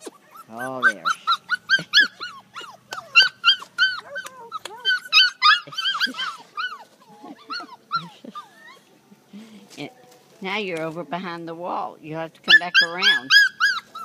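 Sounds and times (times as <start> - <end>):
puppies yipping and whining: 0.0 - 9.3, 12.4 - 14.0.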